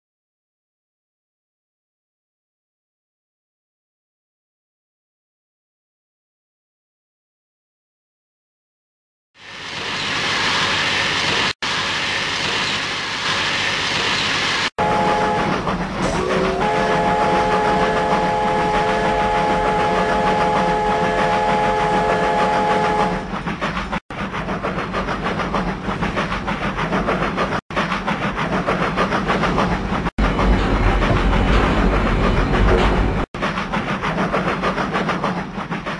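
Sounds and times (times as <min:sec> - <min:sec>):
train hiss: 0:09.4 - 0:15.2
train wheel clatter: 0:09.7 - 0:35.9
train whistle chord: 0:14.8 - 0:23.3.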